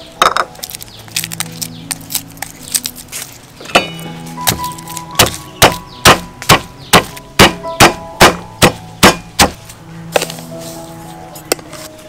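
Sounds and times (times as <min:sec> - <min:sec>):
stone pestle pounding in mortar: 0:03.7 - 0:09.6.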